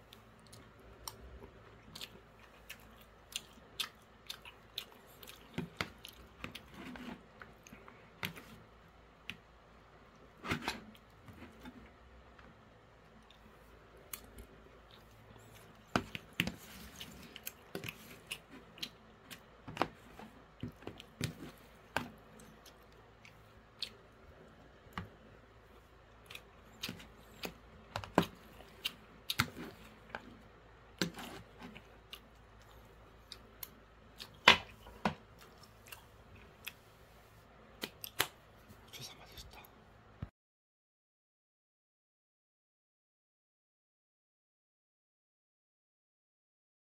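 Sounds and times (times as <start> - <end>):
chewing: 0.1 - 8.6, 13.1 - 25.1, 26.1 - 30.4, 31.0 - 36.8.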